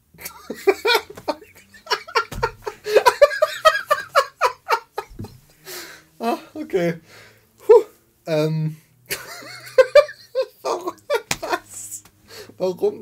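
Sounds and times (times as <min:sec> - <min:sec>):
men laughing: 0:00.2 - 0:05.6, 0:09.1 - 0:11.9.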